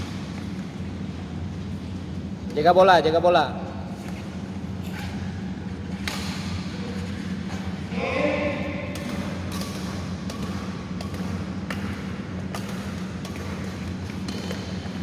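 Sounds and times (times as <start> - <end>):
steady low hum: 0.0 - 15.0
rackets hitting shuttlecock: 5.9 - 7.7, 8.6 - 15.0.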